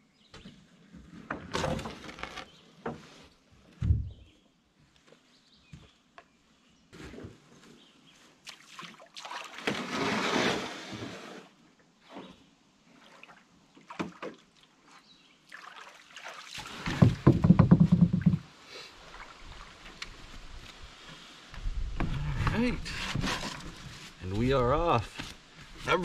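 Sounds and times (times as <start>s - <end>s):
scraping and sloshing: 8.7s - 12.4s
canoe gear knocking: 16.9s - 18.5s.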